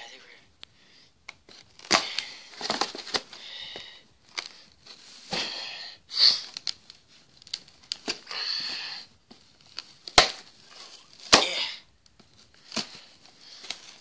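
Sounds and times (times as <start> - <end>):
cardboard box clicks and rustling: 1.5 - 3.4
person sniffing: 5.1 - 6.6.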